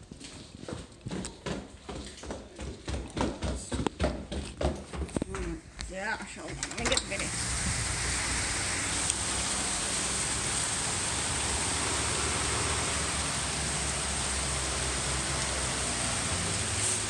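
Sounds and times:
heavy rain pouring: 6.8s - 17.0s.

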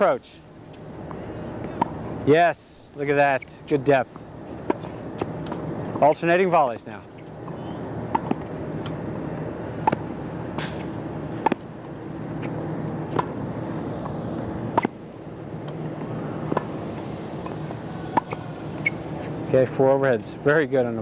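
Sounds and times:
steady low hum: 0.0s - 21.0s
tennis racket hitting ball: 7.4s - 9.0s, 9.7s - 11.7s, 12.4s - 13.4s, 14.0s - 15.0s, 15.6s - 19.3s.

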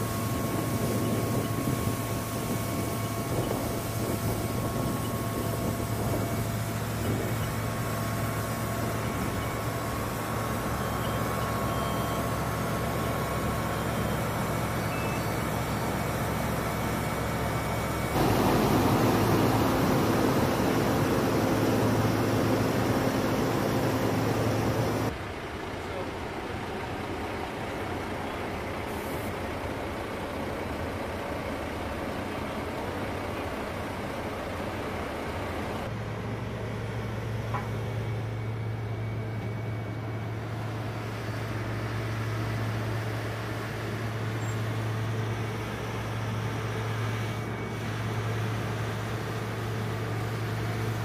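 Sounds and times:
diesel engines running: 0.0s - 51.0s
deep engine hum: 18.0s - 25.1s.

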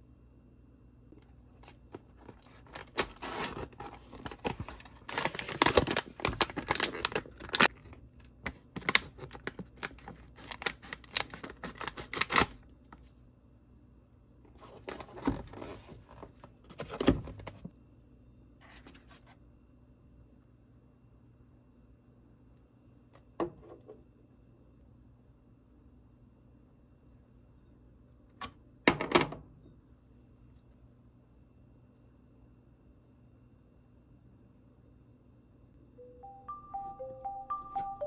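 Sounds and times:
paper and cardboard crinkling: 1.5s - 13.2s, 14.5s - 17.7s.

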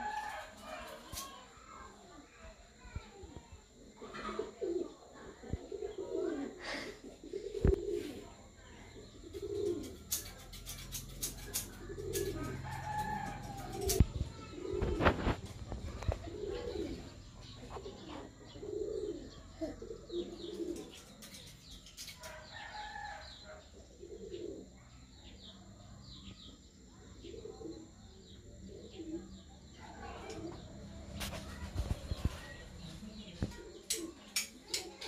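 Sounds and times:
doves cooing: 0.0s - 2.4s, 3.2s - 25.7s, 26.3s - 35.0s
birds chirping: 7.2s - 35.0s.

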